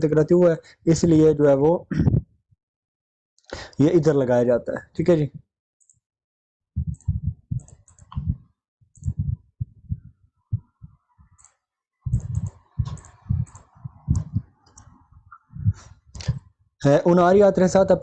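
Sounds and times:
irregular clicks: 6.9s - 8.4s, 9.0s - 9.3s, 11.3s - 15.4s
faint hum: 9.0s - 15.9s.

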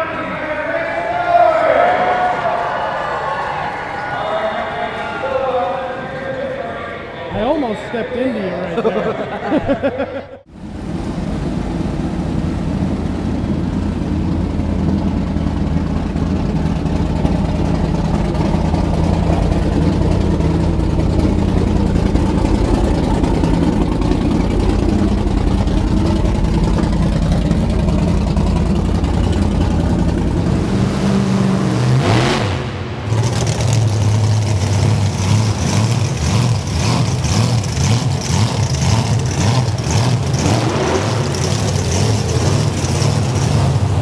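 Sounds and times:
monster truck engines running: 0.0s - 44.0s
lower-pitched engine: 10.4s - 44.0s.

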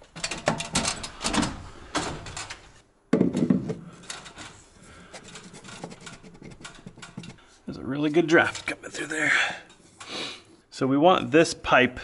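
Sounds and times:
metal stepladder clanking: 0.0s - 2.7s, 3.9s - 4.6s.

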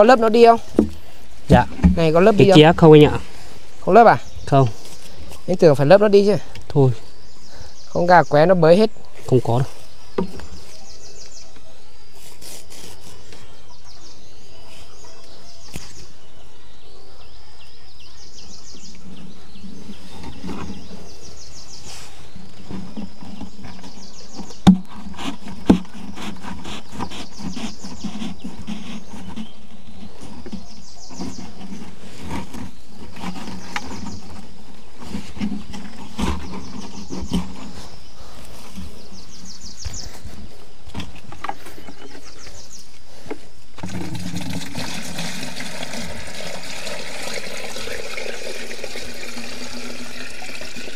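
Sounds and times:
outdoor background noise: 0.0s - 50.9s
sharp knocks: 0.7s - 2.8s.

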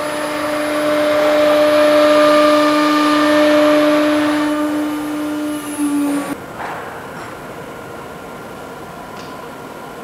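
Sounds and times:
cutter routing wood: 0.0s - 6.4s
router spindle whining: 0.0s - 6.4s.

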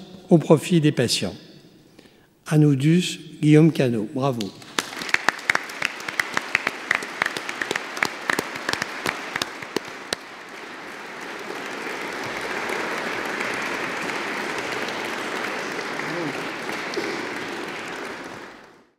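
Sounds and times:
audience applause: 4.6s - 18.9s.

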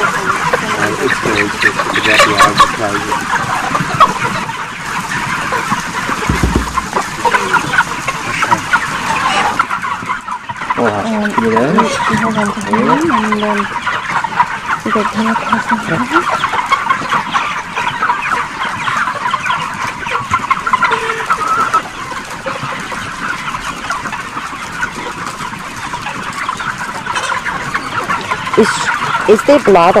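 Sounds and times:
chickens clucking and peeping: 0.0s - 30.0s.

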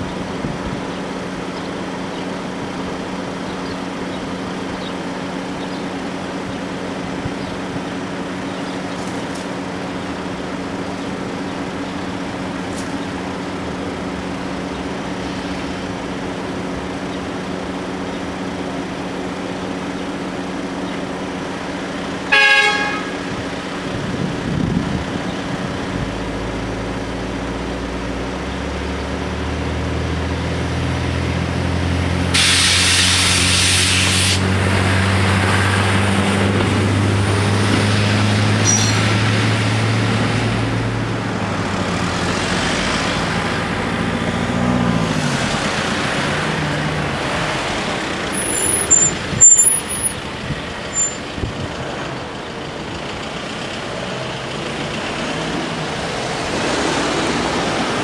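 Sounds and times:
cars rumbling over crossing: 0.0s - 58.0s
engines revving: 0.0s - 58.0s
vehicle engines idling: 0.0s - 58.0s
burst of hiss: 32.3s - 34.5s.

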